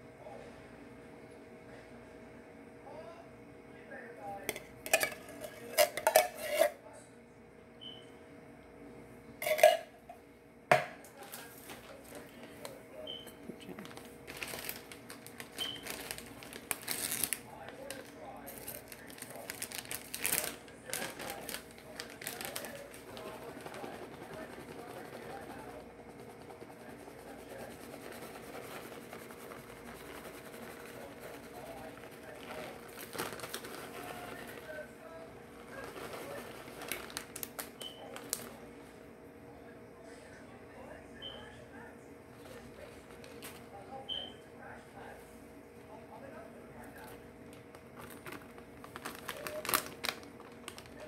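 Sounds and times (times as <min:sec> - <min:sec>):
kitchenware clattering: 0:04.5 - 0:06.8, 0:09.4 - 0:10.0
plastic bag crinkling: 0:13.6 - 0:25.8, 0:28.3 - 0:34.9, 0:35.5 - 0:38.6, 0:47.0 - 0:51.0
scratchy rubbing: 0:23.0 - 0:32.9.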